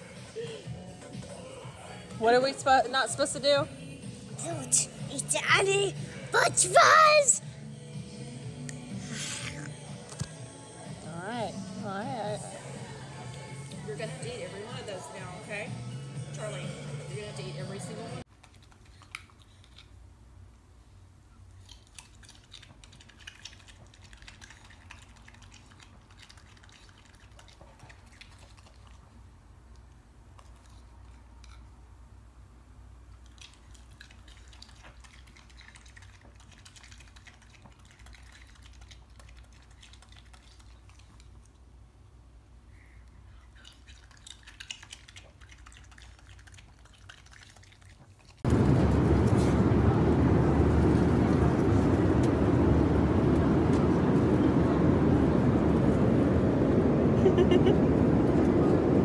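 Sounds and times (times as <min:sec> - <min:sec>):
raccoon chewing wetly: 0:18.3 - 0:20.4, 0:21.5 - 0:31.6, 0:33.0 - 0:42.0, 0:42.7 - 0:48.5
low steady hum: 0:48.4 - 0:59.0.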